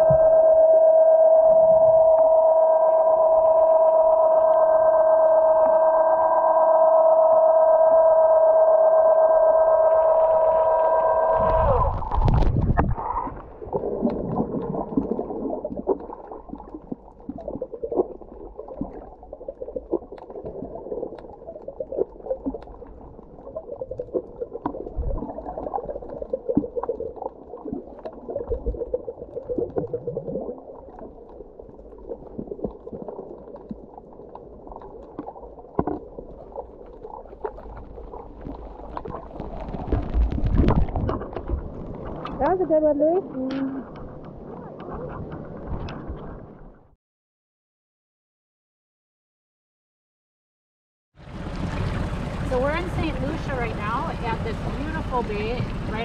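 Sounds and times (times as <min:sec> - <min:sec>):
underwater rush of water: 0:00.0 - 0:46.8, 0:51.2 - 0:56.0
water gurgling swirl: 0:00.0 - 0:46.9, 0:51.2 - 0:56.0
underwater clicks and crackles: 0:09.9 - 0:46.8.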